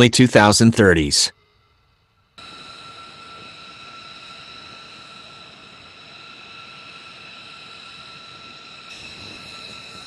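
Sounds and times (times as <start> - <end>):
jet engines whining: 2.4 - 10.0.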